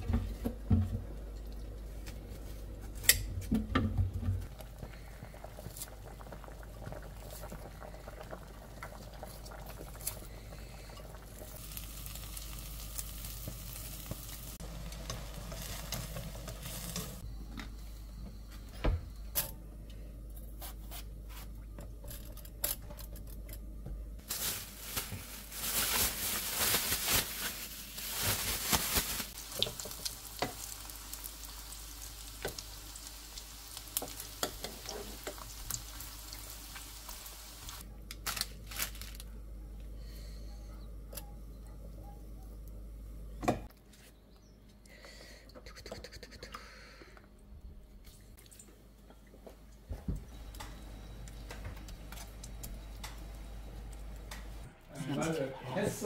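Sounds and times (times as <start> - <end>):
vegetables sizzling in a pan: 11.2 - 17.2, 24.2 - 37.8.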